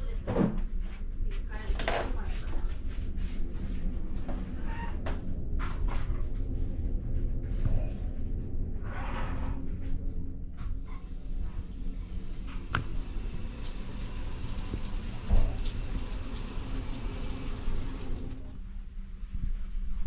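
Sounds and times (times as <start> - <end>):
water hissing from shower head: 10.9 - 18.5.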